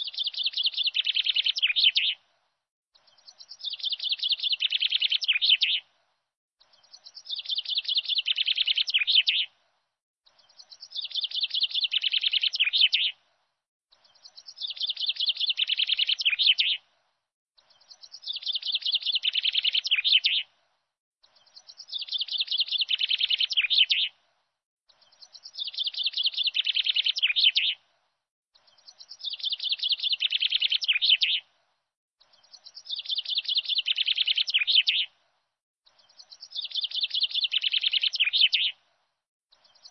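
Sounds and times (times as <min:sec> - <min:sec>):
bird chirping trill: 0:32.2 - 0:35.1.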